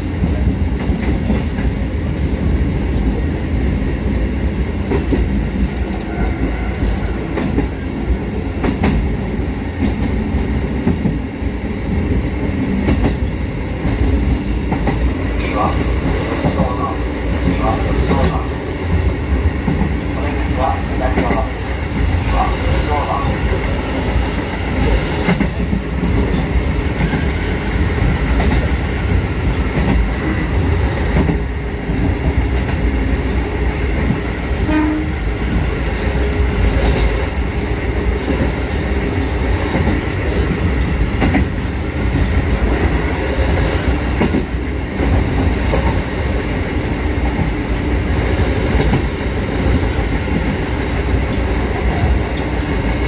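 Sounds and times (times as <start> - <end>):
train wheels rumbling on rail: 0.0 - 53.0
clack over rail joint: 4.9 - 7.8, 10.8 - 11.2, 12.8 - 18.5, 19.6 - 23.4, 25.2 - 27.4, 28.0 - 32.8, 39.7 - 42.5, 44.1 - 46.0, 48.7 - 52.7.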